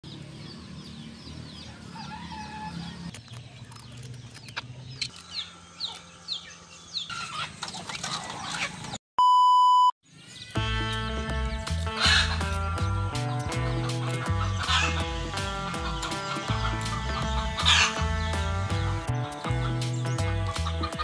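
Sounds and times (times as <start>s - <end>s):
chickens clucking: 4.4s - 9.0s, 11.7s - 21.0s.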